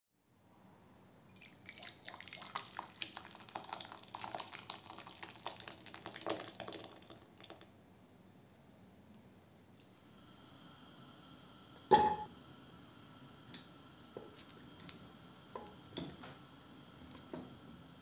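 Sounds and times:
soup pouring into a bowl: 1.4 - 7.7.

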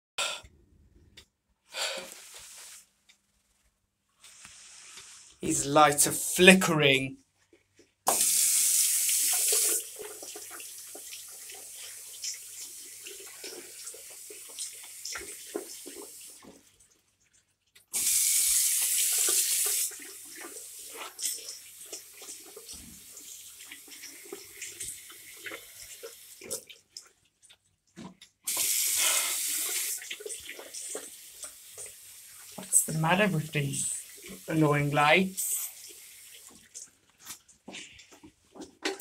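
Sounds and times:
tap water running into sink: 8.1 - 16.7, 17.9 - 27.1, 28.0 - 39.0.

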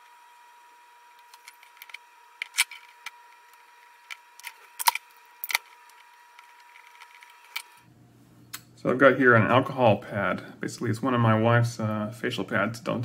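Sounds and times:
small tools clicking and knocking: 1.2 - 7.8.

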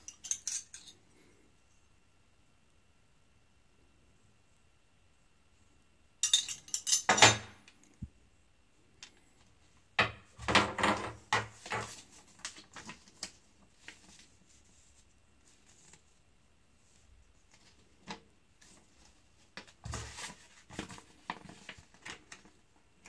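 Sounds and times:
metal parts clattering on wood: 0.0 - 0.9, 6.2 - 7.5
rustling: 11.6 - 22.6.

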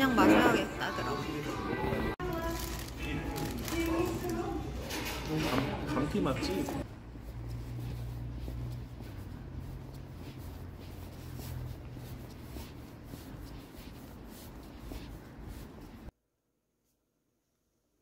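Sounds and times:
coat swishing: 6.2 - 16.1
footsteps on paving stones: 6.8 - 16.1.

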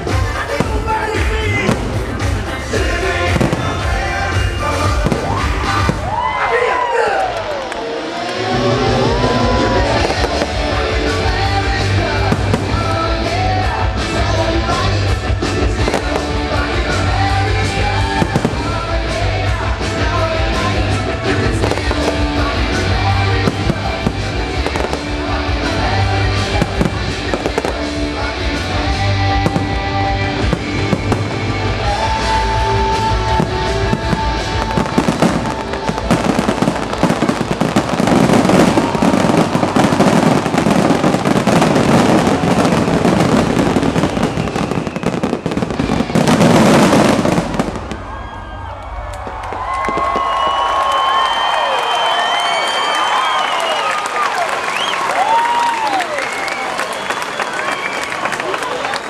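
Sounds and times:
rapid barrage of firework bangs: 0.0 - 6.2, 9.6 - 48.2
patriotic music: 0.0 - 6.6, 7.2 - 59.0
fireworks bursting: 0.0 - 59.0.

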